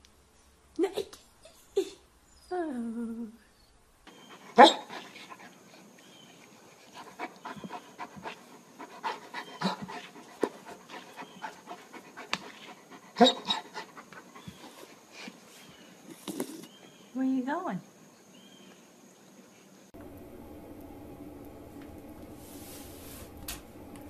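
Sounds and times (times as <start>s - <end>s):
dog panting: 4.1s - 15.6s.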